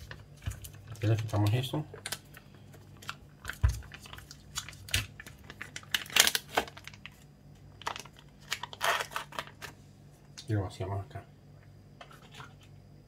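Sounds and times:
plastic seal crinkling and tearing: 0.0s - 9.8s.

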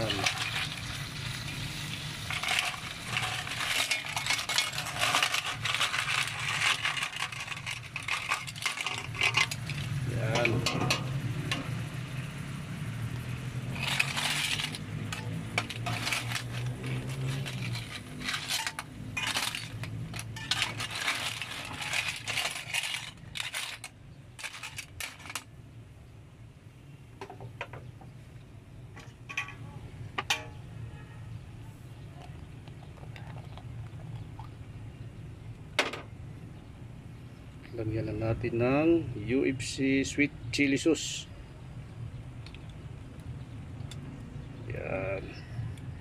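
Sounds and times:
shells clinking in metal pot: 0.0s - 1.0s, 2.2s - 11.8s, 13.7s - 25.5s.

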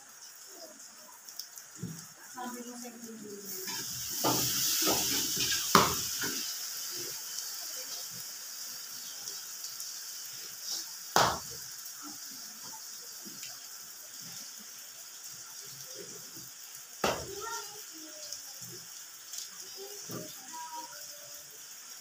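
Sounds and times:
steady hiss: 0.0s - 22.0s
pots and utensils clattering: 3.6s - 6.5s.

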